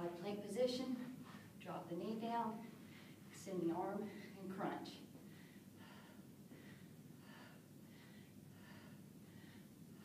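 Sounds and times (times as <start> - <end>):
woman breathing quickly: 2.7 - 3.4, 5.1 - 10.0.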